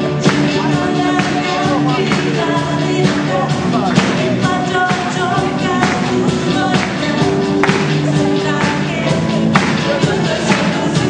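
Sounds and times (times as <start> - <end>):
live pop band playing: 0.0 - 11.0
person singing into microphone: 0.0 - 11.0.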